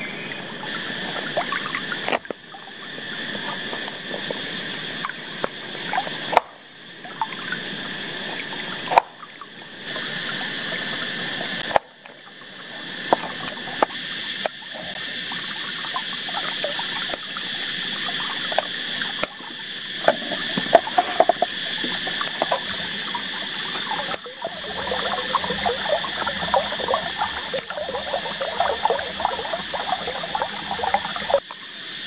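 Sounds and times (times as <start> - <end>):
stream trickling: 0.0 - 32.0
high-pitched drone: 12.4 - 31.4.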